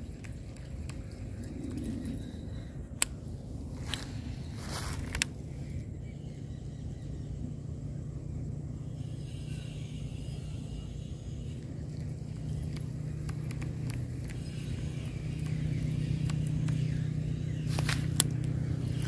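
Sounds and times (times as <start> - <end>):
low engine hum: 0.0 - 19.0
faint clicks: 11.5 - 19.0.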